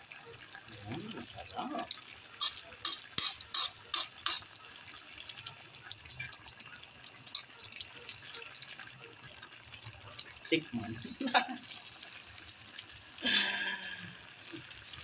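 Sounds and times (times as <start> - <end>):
metal ladle stirring in wok: 2.4 - 4.6, 7.3 - 7.6.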